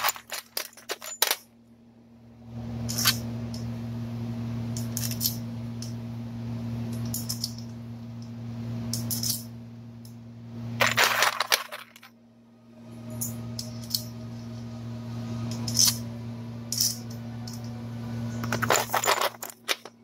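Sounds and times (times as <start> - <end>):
metal bolts clinking: 0.0 - 1.5, 6.9 - 7.7, 8.9 - 9.5, 15.5 - 16.0, 16.7 - 20.0
steady low hum: 0.0 - 20.0.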